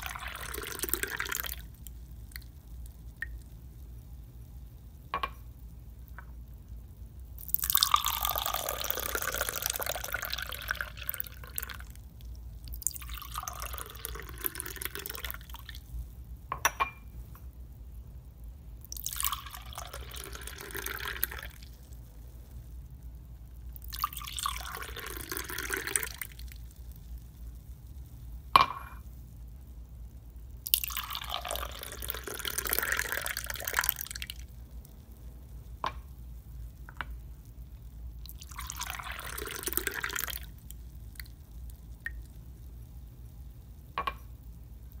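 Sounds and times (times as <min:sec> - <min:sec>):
wine pouring into glass: 0:00.0 - 0:01.7, 0:07.4 - 0:11.8, 0:12.8 - 0:15.7, 0:18.9 - 0:21.6, 0:23.8 - 0:26.4, 0:30.6 - 0:34.3, 0:38.3 - 0:40.5.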